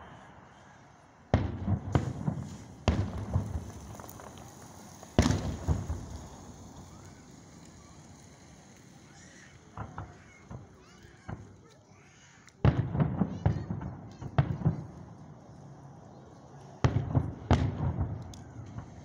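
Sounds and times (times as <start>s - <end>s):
firework shells bursting: 1.3s - 15.2s
firework pops and crackle: 1.3s - 15.7s, 16.5s - 19.0s.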